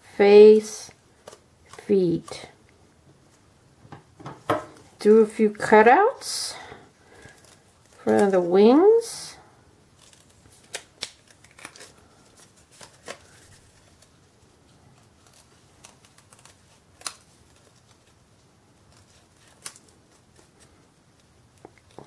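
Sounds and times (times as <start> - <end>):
scissors snipping paper: 10.0 - 11.9, 15.0 - 18.1, 18.9 - 20.7.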